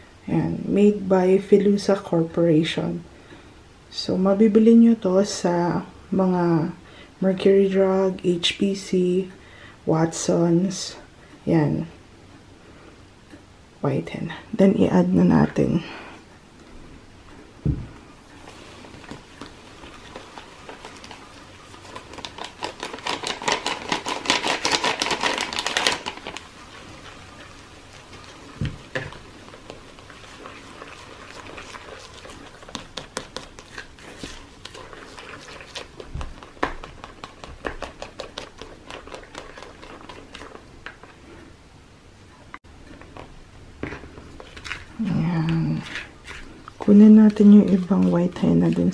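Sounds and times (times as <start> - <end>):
plastic spoon scraping plastic bowl: 18.4 - 26.4, 28.1 - 41.5, 42.9 - 48.9.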